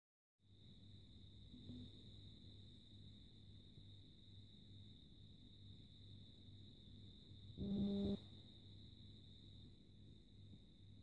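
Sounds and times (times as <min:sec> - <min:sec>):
low hum: 0:07.5 - 0:08.2
high-pitched whine: 0:07.6 - 0:08.3.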